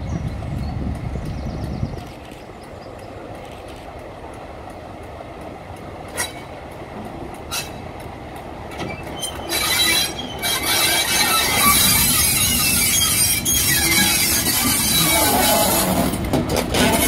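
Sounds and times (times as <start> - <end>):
diesel locomotive rumble: 0.0 - 17.0
high-pitched wheel squeal: 8.9 - 16.2.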